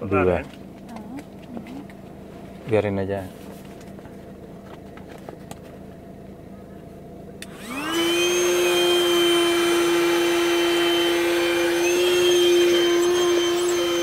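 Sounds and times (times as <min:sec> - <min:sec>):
electric air pump whining: 0:07.4 - 0:14.0.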